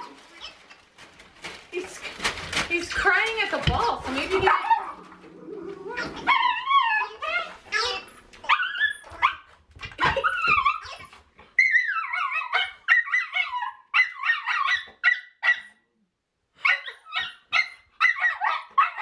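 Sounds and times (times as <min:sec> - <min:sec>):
puppy whining and yelping: 0:04.5 - 0:15.7, 0:16.6 - 0:19.0.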